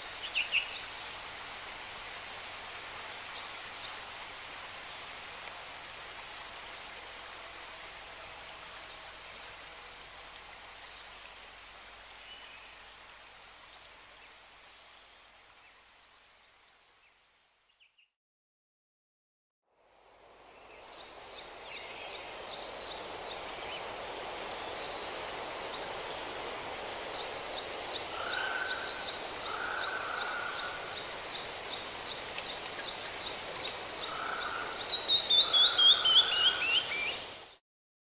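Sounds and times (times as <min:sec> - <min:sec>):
steady background hiss: 0:00.0 - 0:17.8, 0:19.7 - 0:37.6
songbirds chirping and trilling: 0:27.1 - 0:37.5.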